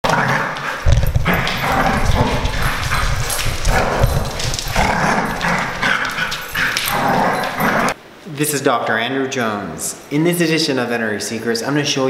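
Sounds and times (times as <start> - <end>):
dogs growling play-fighting: 0.0 - 8.0.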